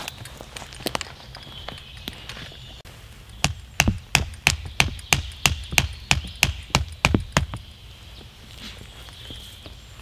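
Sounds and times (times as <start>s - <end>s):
hatchet knocking wooden stake: 3.4s - 7.6s.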